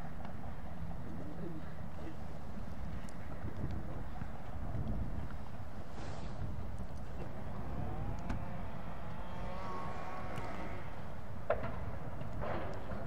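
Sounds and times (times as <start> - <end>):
wind rumbling on microphone: 0.0 - 13.0
faint vehicle engine drone: 6.0 - 13.0.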